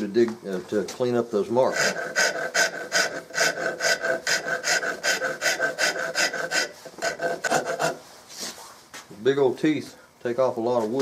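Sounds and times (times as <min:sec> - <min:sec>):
file rasping on wood: 0:01.6 - 0:08.0.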